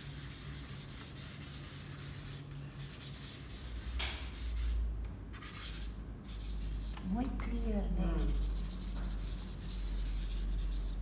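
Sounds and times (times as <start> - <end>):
pastel scraping on paper: 5.4 - 7.1, 8.2 - 11.0.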